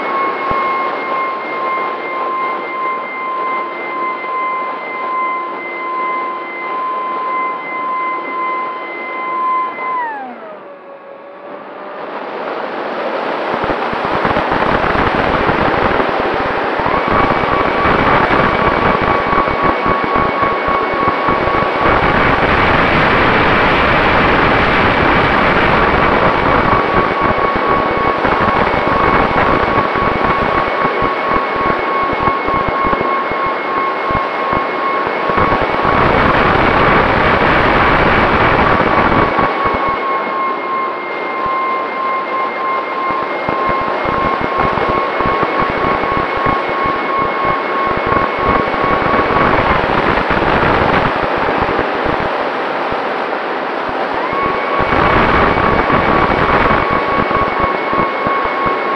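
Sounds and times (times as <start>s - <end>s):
drone motors whining: 0.0s - 58.9s
wind rush: 12.2s - 40.0s, 43.3s - 58.9s.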